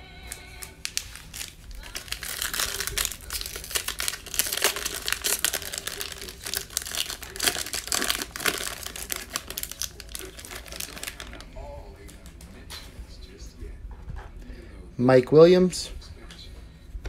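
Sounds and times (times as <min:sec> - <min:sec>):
foil wrapper tearing and crinkling: 0:00.2 - 0:11.5.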